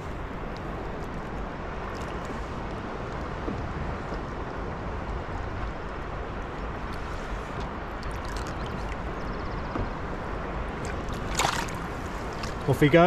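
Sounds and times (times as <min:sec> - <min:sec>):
water sloshing and trickling: 0:00.0 - 0:13.0
fish splashing: 0:07.9 - 0:09.4, 0:10.6 - 0:12.6.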